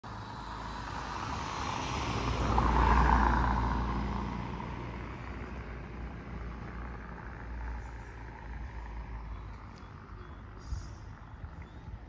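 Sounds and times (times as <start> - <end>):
low rumble of traffic: 0.0 - 12.0
vehicle passing close by: 0.0 - 12.0.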